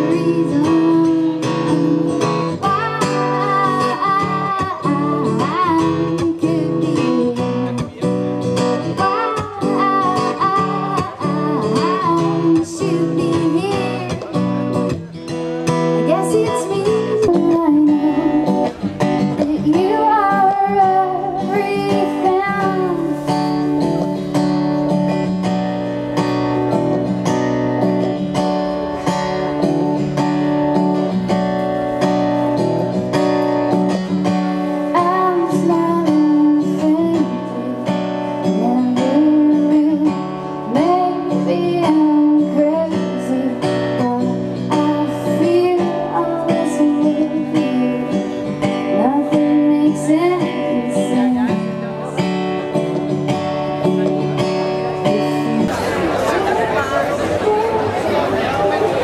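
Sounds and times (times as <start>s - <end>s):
woman singing: 0.0s - 14.5s, 15.9s - 24.2s, 33.5s - 51.9s, 54.9s - 55.7s
acoustic guitar strumming: 0.0s - 59.0s.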